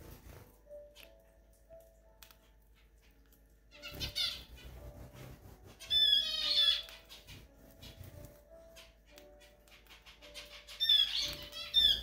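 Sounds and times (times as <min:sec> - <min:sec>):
cockatiel chirping: 0:05.8 - 0:08.1, 0:08.7 - 0:12.0.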